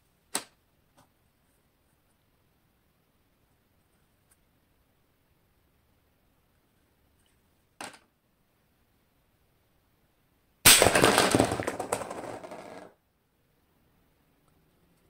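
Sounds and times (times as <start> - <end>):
airsoft rifle shot: 10.7 - 11.8.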